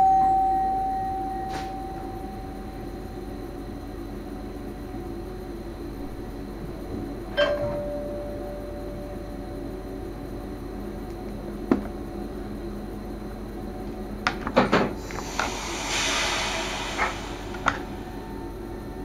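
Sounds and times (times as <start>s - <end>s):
train cab hum: 0.0s - 19.0s
brief hiss: 15.0s - 19.0s.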